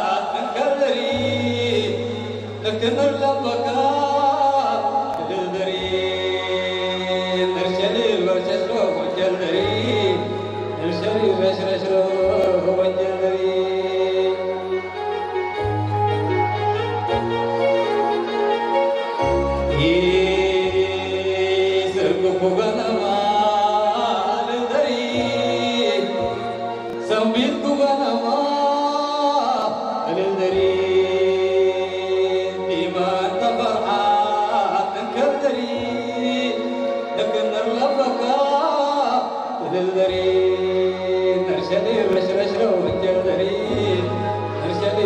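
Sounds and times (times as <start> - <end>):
man singing into a microphone: 0.0 - 45.0
electronic keyboard chords: 1.0 - 45.0.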